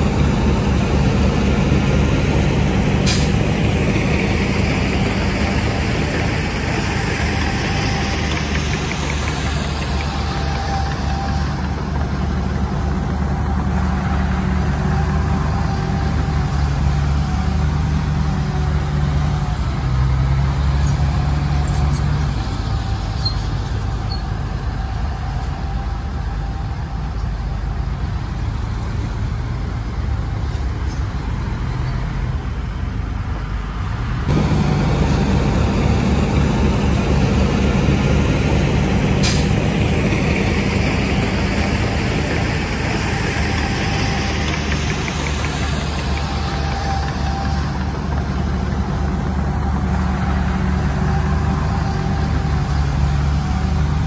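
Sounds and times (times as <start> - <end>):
diesel machinery engine: 0.0 - 54.0
sharp hiss or clank: 3.0 - 3.4, 39.2 - 39.6.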